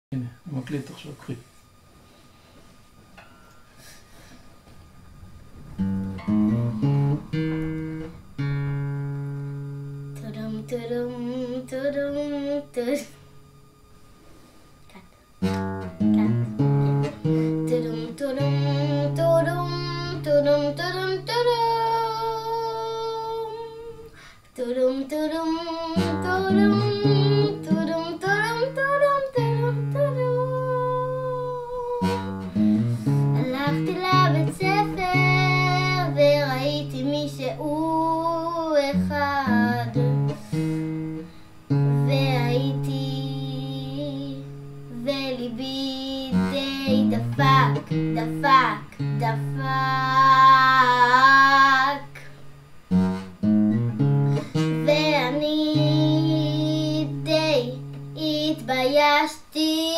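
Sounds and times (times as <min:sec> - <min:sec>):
acoustic guitar: 0:01.5 - 0:59.9
girl singing: 0:09.5 - 0:13.7, 0:14.8 - 0:52.5, 0:54.0 - 0:59.9.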